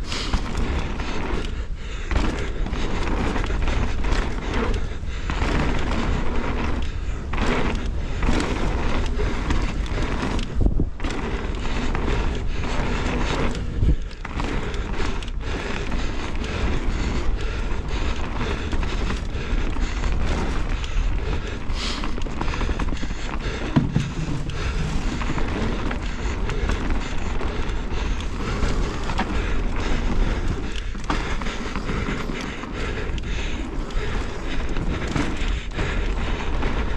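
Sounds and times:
bike knocks and rattles: 0:00.0 - 0:36.9
bike tyre noise on gravel: 0:00.0 - 0:36.9
wind rush on microphone: 0:00.0 - 0:36.9
heavy thumps: 0:22.2 - 0:35.5.

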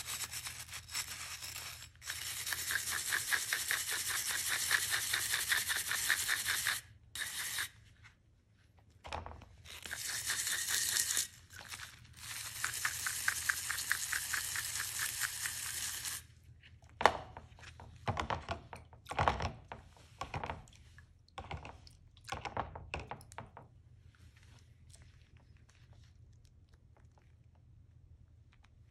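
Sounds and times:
brush scrubbing metal: 0:00.0 - 0:07.8, 0:09.7 - 0:16.2.

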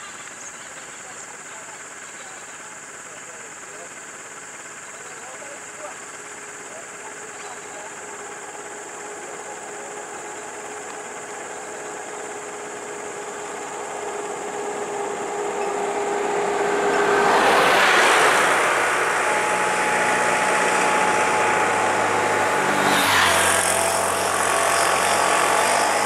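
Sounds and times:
vehicle engine and tyre noise: 0:02.8 - 0:26.0.

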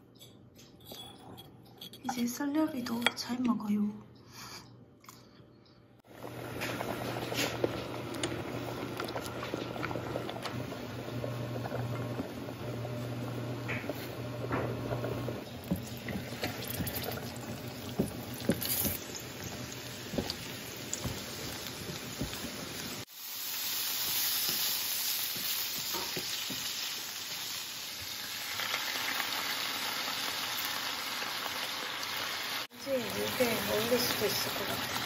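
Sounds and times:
food sizzling in a pan: 0:12.6 - 0:35.0.

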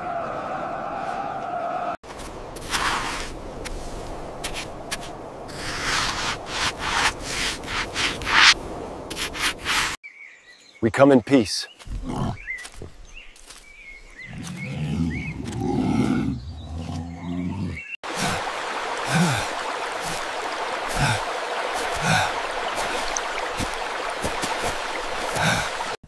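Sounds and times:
forest stream rushing: 0:02.0 - 0:10.0, 0:18.0 - 0:26.0.

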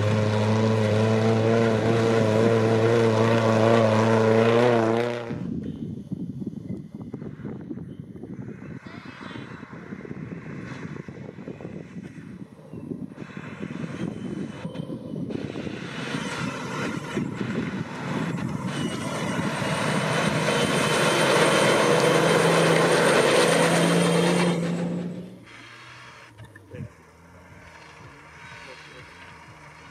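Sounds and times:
off-road vehicle engine: 0:00.0 - 0:29.9.

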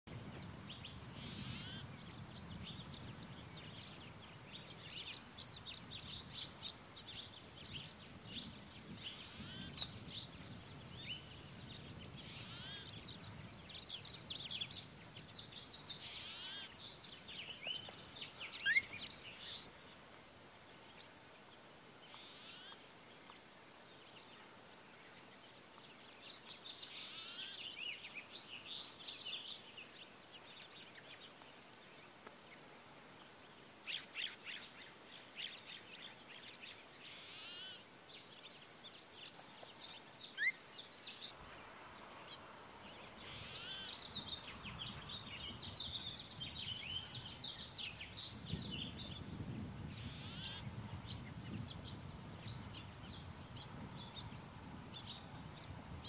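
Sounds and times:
songbirds chirping: 0:00.0 - 0:56.0.

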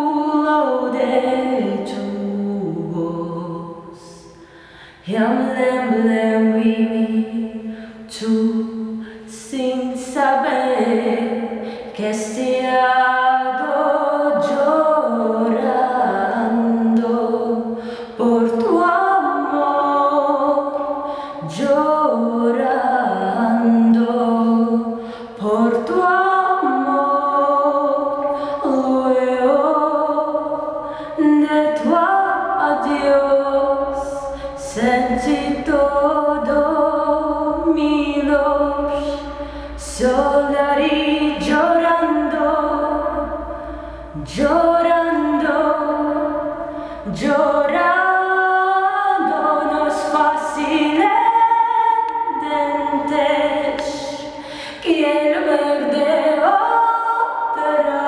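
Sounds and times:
woman singing a cappella: 0:00.0 - 0:58.0.

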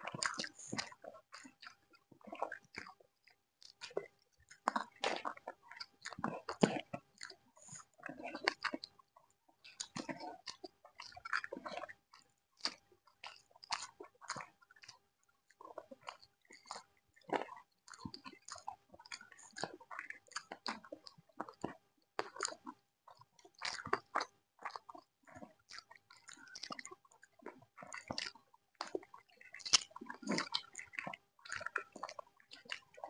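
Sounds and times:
people chewing food: 0:00.0 - 0:33.0.

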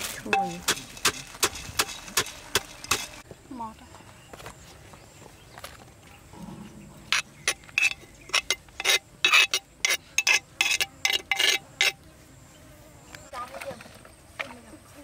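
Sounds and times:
scraping inside clay mortar: 0:00.0 - 0:03.3, 0:07.1 - 0:12.1.

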